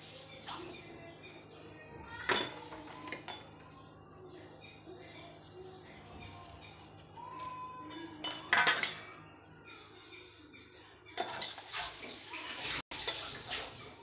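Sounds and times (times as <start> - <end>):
steel bowls and utensils clinking: 2.2 - 3.7, 4.6 - 14.0.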